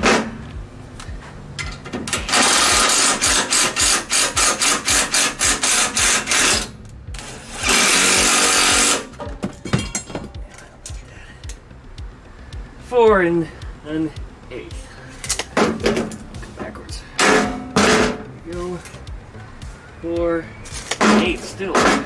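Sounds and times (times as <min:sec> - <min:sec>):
cordless driver running bolts: 0:02.1 - 0:09.1.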